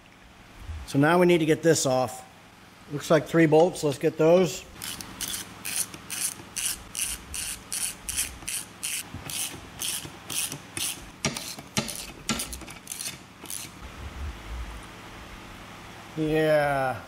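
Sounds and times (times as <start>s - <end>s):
socket ratchet clicking: 4.8s - 13.7s.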